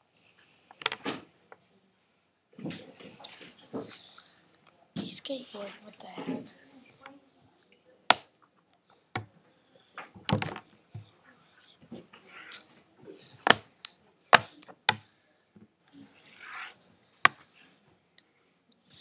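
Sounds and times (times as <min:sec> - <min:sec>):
taps and knocks on laptop lid: 0:10.3 - 0:10.6, 0:14.4 - 0:15.0.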